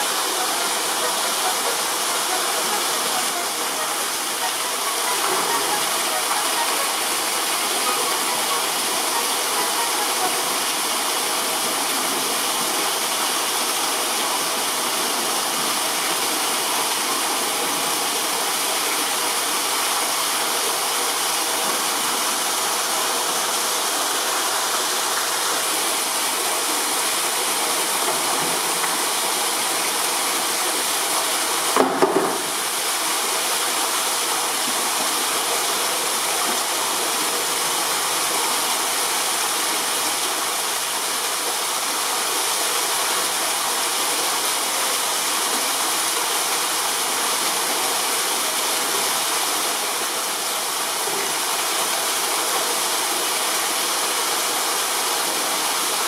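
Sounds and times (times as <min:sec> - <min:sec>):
water rushing: 0:00.0 - 0:56.0
brief knock: 0:31.8 - 0:32.5.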